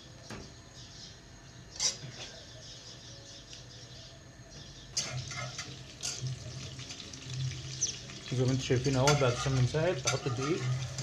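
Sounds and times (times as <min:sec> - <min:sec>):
butter sizzling in a pot: 0:05.0 - 0:11.0.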